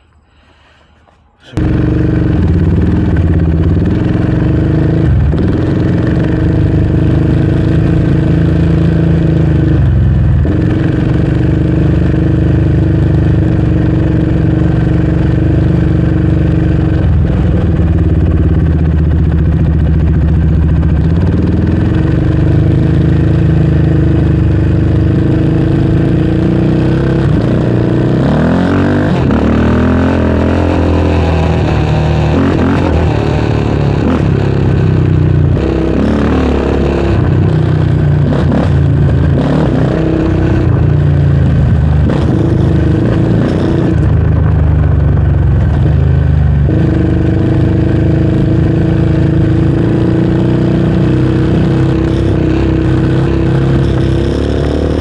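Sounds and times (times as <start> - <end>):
four-stroke engine running: 1.4 - 55.0.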